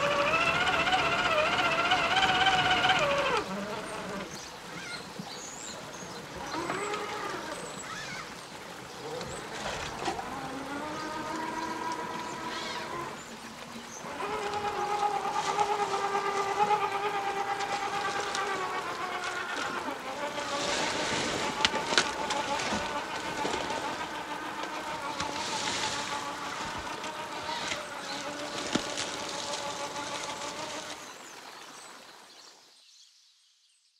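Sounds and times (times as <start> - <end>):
electric motor whine: 0.0 - 4.5, 9.1 - 31.0.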